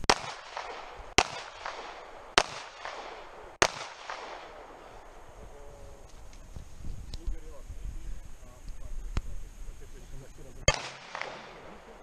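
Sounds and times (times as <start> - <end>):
pistol shots with echo: 0.0 - 5.4, 10.7 - 12.0.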